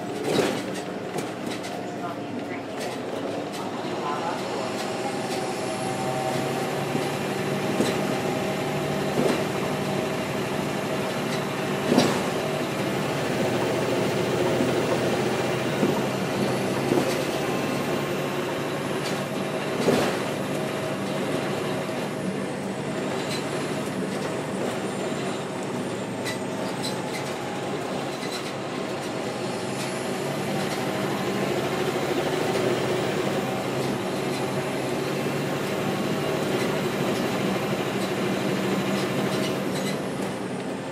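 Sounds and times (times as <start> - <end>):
bus diesel engine running: 0.0 - 40.9.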